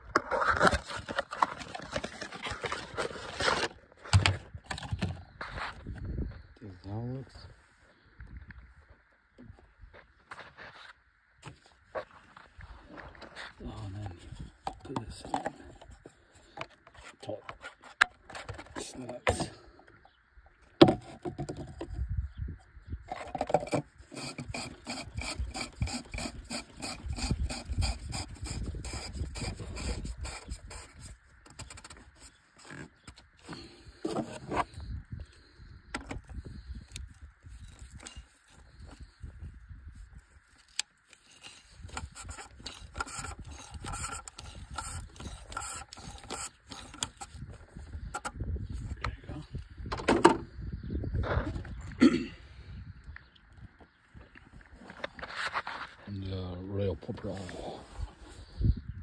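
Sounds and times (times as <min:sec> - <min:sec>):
ratchet clicking and scraping: 0:23.6 - 0:31.9, 0:40.6 - 0:47.4.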